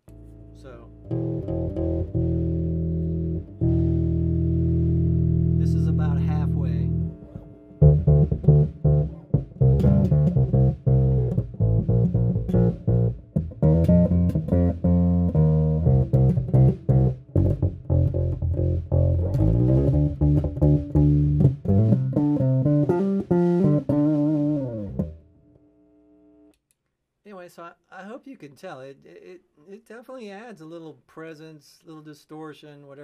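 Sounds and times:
distorted bass guitar notes: 0:00.0 - 0:25.7.

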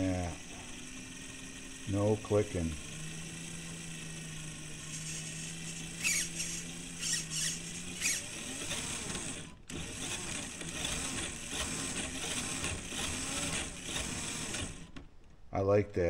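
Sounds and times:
electric motor whining: 0:00.0 - 0:15.1
short high squeaks: 0:04.9 - 0:08.5.

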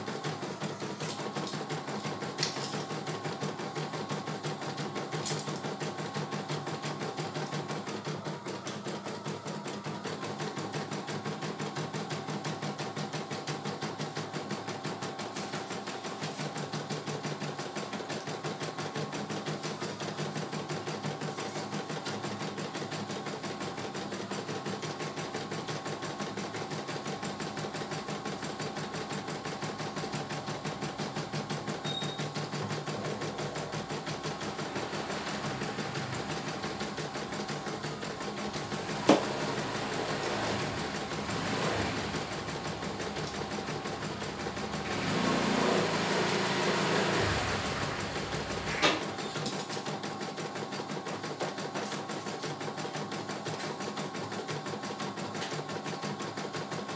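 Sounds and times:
embroidery machine stitching: 0:00.0 - 0:56.9.

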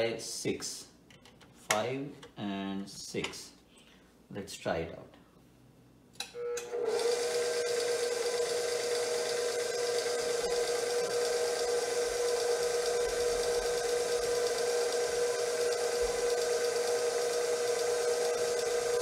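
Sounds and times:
mixer motor whine: 0:06.3 - 0:19.0.

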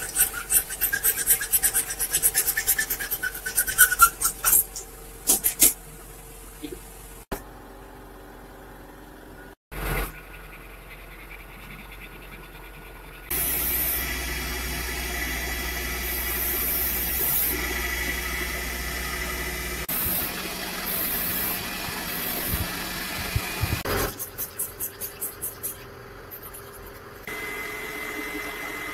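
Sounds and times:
machine humming: 0:13.3 - 0:24.2, 0:27.2 - 0:28.9.

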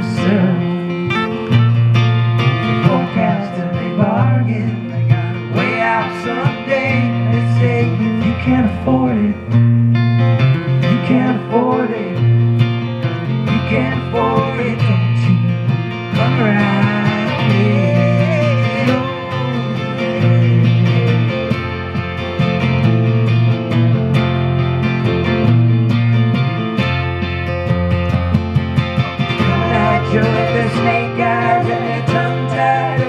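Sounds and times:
acoustic guitar: 0:00.0 - 0:33.0
electric guitar melody: 0:00.0 - 0:33.0.

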